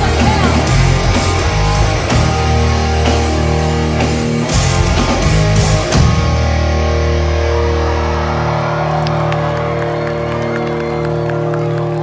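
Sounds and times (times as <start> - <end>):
bass: 0.0 - 12.0
distorted electric guitars: 0.0 - 12.0
drums: 0.0 - 12.0
rock band playing: 0.0 - 12.0.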